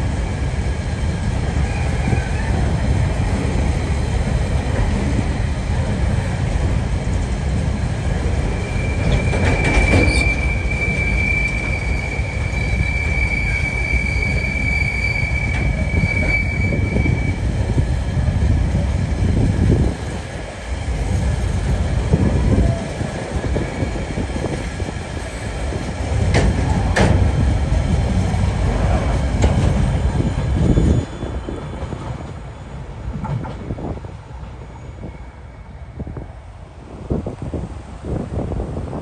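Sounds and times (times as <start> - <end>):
freight train rumbling past: 0.0 - 39.0
thin wheel squeal: 8.6 - 17.4.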